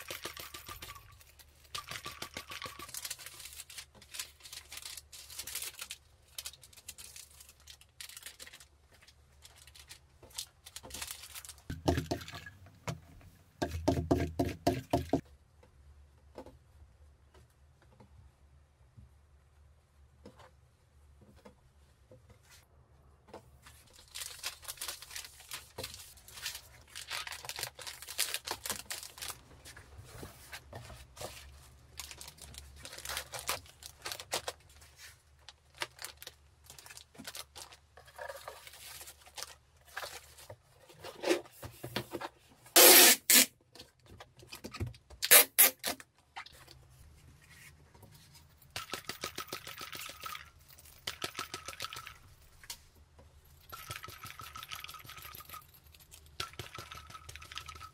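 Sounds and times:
packing material rustling: 0:02.5 - 0:11.7, 0:23.7 - 0:40.6.

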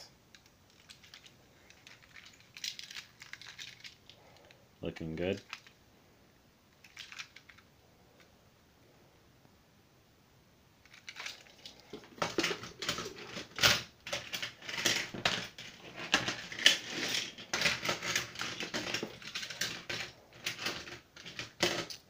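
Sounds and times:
plastic toys clattering on table: 0:00.3 - 0:04.6, 0:05.3 - 0:05.8, 0:06.8 - 0:07.6, 0:10.9 - 0:22.0.

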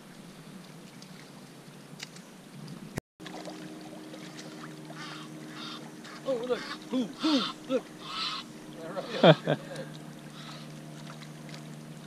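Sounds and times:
steady low hum: 0:02.6 - 0:12.0
short honking calls: 0:05.0 - 0:09.5.

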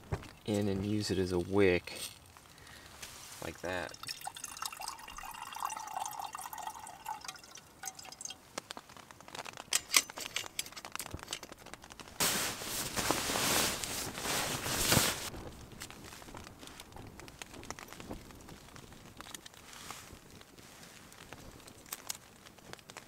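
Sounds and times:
nylon fabric rustling: 0:02.9 - 0:03.6, 0:08.7 - 0:23.0
water trickling: 0:03.4 - 0:08.5
kettle clinking on metal stove: 0:04.0 - 0:08.4, 0:09.7 - 0:11.5.

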